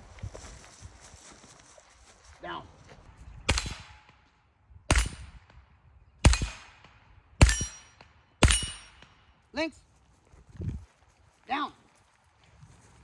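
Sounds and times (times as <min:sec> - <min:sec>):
rifle shots: 0:03.5 - 0:04.2, 0:04.9 - 0:05.4, 0:06.2 - 0:09.1.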